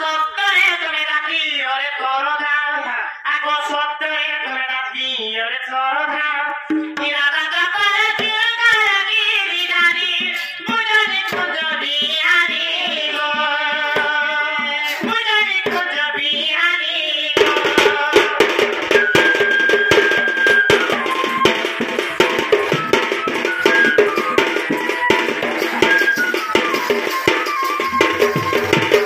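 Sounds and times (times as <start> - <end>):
person singing folk song: 0.0 - 25.9
fast dense drumming: 17.4 - 29.0
held melody note: 18.9 - 29.0.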